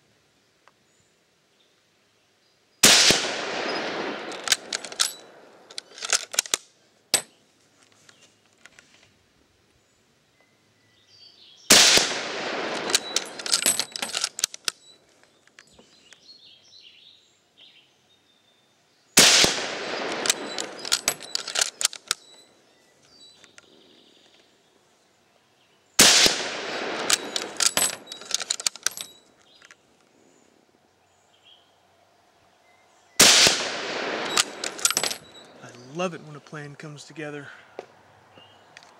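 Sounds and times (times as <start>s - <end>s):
rifle shots: 2.8s - 6.6s, 11.7s - 14.6s, 19.2s - 22.2s, 26.0s - 29.0s, 33.2s - 35.4s
crackling echo: 11.7s - 14.7s, 19.2s - 22.2s, 26.0s - 28.9s, 33.2s - 37.6s.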